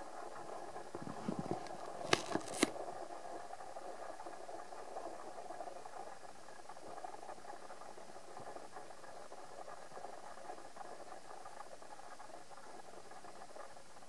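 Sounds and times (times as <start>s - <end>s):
steady room hum: 0.0s - 8.7s.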